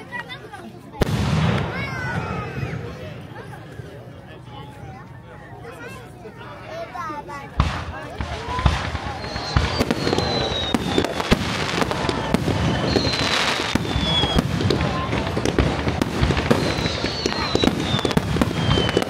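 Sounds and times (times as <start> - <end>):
fireworks bangs and crackling: 1.0 - 3.6, 7.4 - 19.0
high falling whistles: 9.1 - 11.3, 11.9 - 14.4, 16.6 - 19.0.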